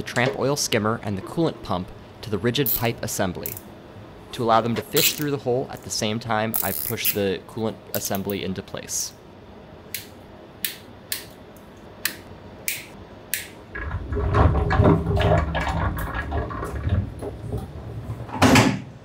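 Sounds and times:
metal tank scraping rumble: 13.7s - 18.4s.

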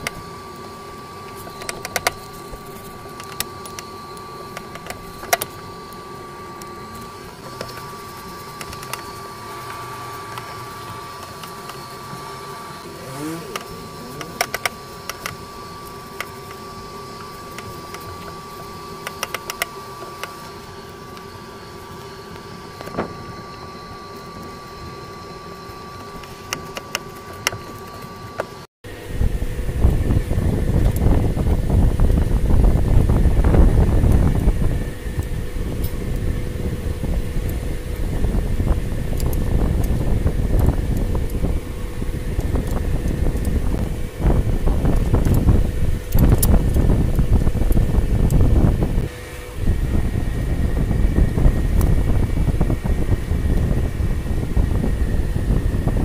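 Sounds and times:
steady background hum: 0.0s - 56.0s.

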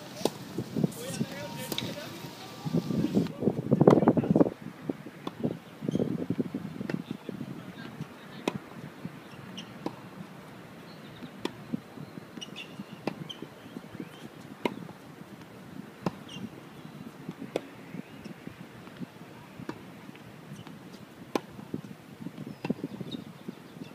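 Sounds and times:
tennis balls struck with racquets: 1.0s - 2.4s, 8.0s - 8.6s, 9.8s - 10.1s, 12.4s - 13.3s, 21.3s - 21.7s.

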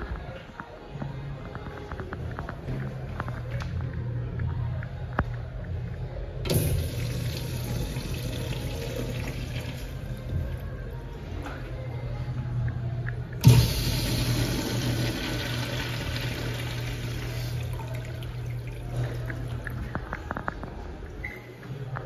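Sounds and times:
urinal flushing: 6.5s - 10.6s, 13.4s - 20.0s.

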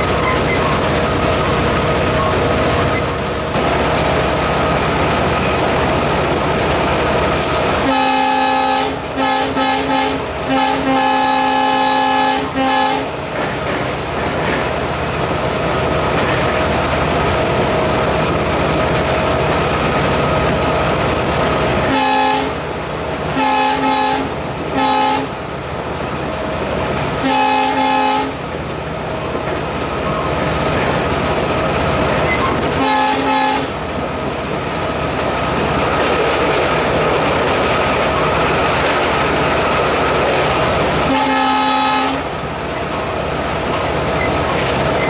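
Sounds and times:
locomotive engine and rail noise: 0.0s - 45.0s
train horn blasts: 7.8s - 13.1s, 21.8s - 22.6s, 23.3s - 25.4s, 27.2s - 28.4s, 32.7s - 33.8s, 41.0s - 42.3s.

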